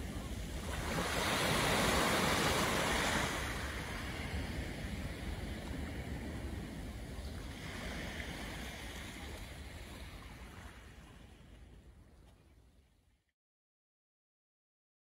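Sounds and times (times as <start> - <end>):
waves washing onto shingle: 0.0 - 6.5
wind rumbling on microphone: 0.0 - 12.6.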